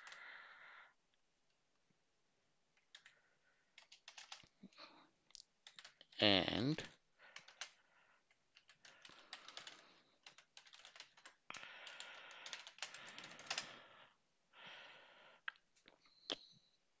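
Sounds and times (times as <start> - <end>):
keyboard typing: 2.8 - 4.8, 5.4 - 6.2, 6.8 - 13.8.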